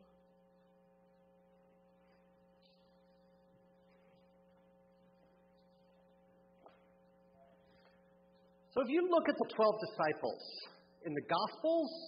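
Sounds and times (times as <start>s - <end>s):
faint electrical hum: 0.0s - 12.0s.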